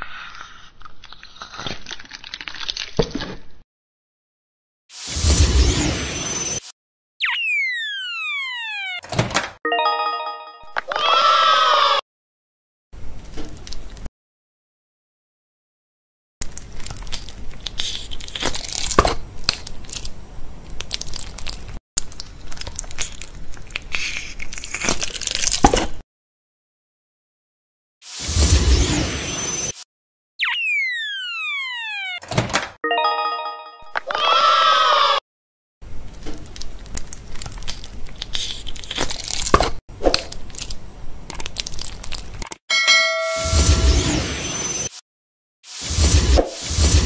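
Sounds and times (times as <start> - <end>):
slime crackling and popping: 20.7 - 25.8, 36.2 - 42.5.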